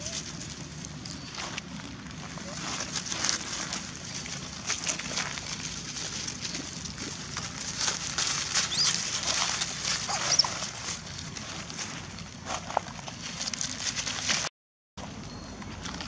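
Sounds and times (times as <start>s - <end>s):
rustling of dry leaves: 0.0s - 16.0s
monkeys squeaking and whimpering: 8.6s - 9.3s, 10.0s - 10.7s.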